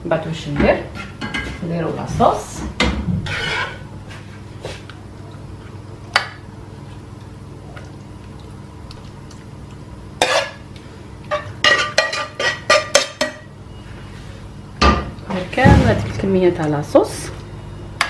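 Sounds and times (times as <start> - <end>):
metal spoon scraping: 3.3 - 3.8.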